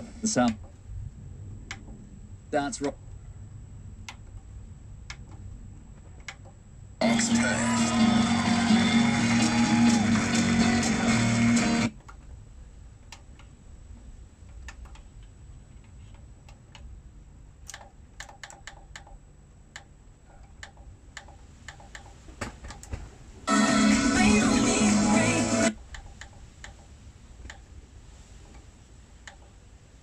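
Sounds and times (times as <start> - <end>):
radio station playing: 0.0 - 0.6, 7.0 - 11.9, 23.5 - 25.8.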